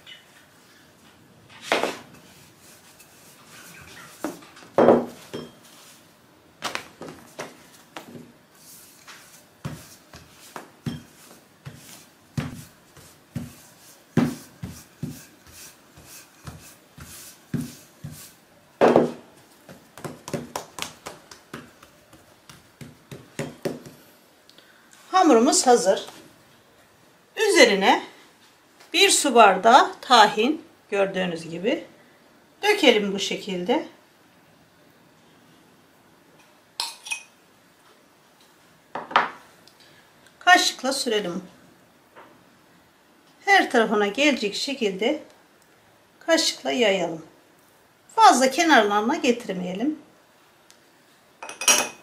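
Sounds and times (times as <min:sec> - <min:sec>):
rolling pin knocking on table: 0:22.5 - 0:24.0.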